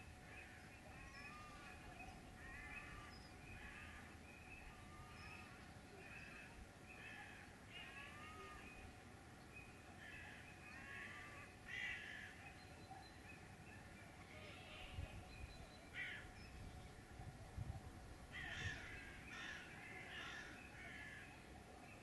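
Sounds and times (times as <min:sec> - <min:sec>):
crows cawing: 0:02.4 - 0:04.2, 0:04.9 - 0:08.6, 0:10.0 - 0:12.4, 0:15.9 - 0:16.3, 0:18.3 - 0:21.4.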